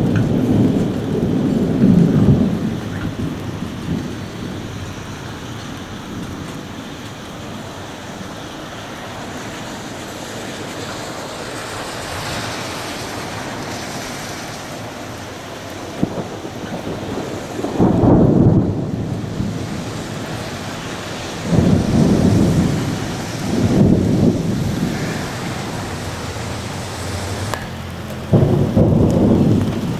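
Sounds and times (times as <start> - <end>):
rolls of thunder: 0.0 - 5.0, 16.0 - 27.6, 28.2 - 29.9
thunder crack: 0.0 - 6.8, 10.7 - 29.9
steady rain hiss: 0.0 - 29.9.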